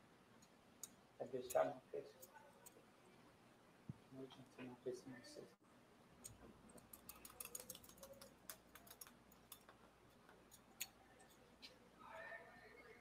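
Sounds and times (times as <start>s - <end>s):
faint muffled voice: 10.9s - 13.0s.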